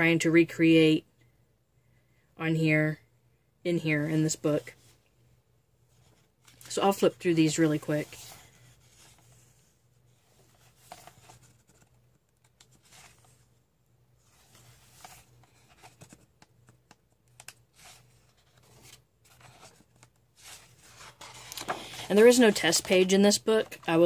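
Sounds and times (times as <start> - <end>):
book pages turning: 6.0 - 24.0.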